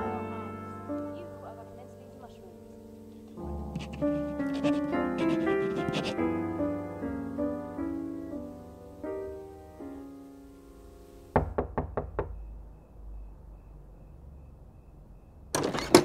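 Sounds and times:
soft melodic music: 0:00.0 - 0:11.4
knocks on a door: 0:11.4 - 0:12.5.

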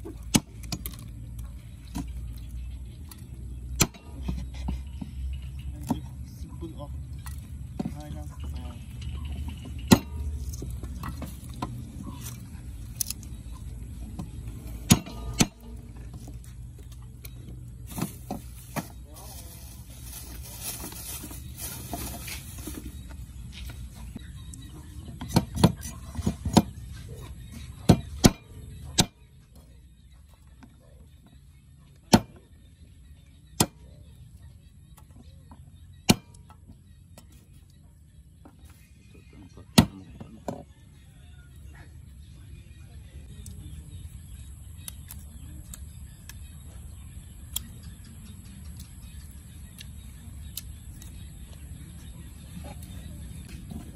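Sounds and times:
cleaver chopping on wooden block: 0:03.8 - 0:04.4, 0:36.1 - 0:36.4.

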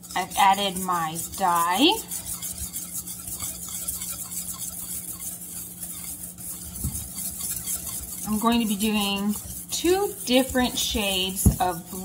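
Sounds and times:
steady low hum: 0:00.0 - 0:12.0
whisk stirring powder in metal bowl: 0:00.0 - 0:12.0.

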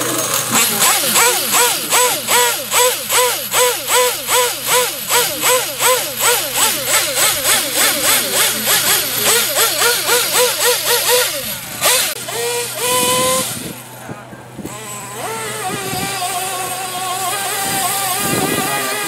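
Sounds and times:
small nitro engine revving: 0:00.0 - 0:19.0.

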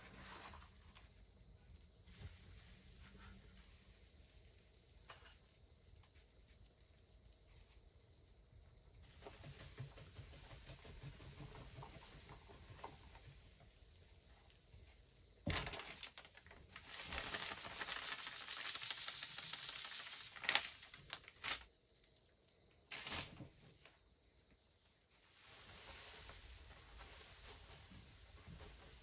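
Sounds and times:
powder pouring hiss: 0:00.0 - 0:21.7, 0:25.0 - 0:29.0
plastic bag crinkling: 0:15.4 - 0:21.7, 0:22.9 - 0:23.5.

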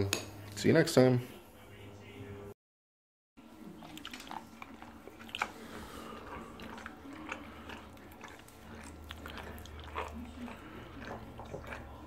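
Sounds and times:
dog lapping from a bowl: 0:03.6 - 0:12.0.

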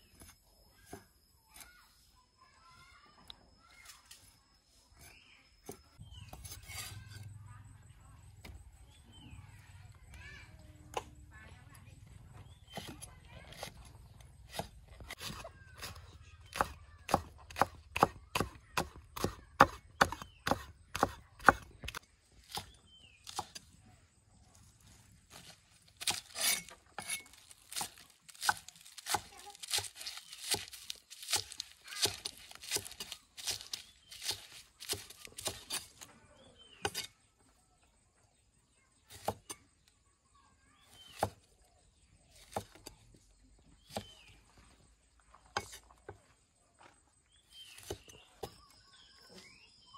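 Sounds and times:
cleaver chopping on wooden block: 0:14.5 - 0:23.6, 0:26.0 - 0:36.0, 0:39.1 - 0:39.6.

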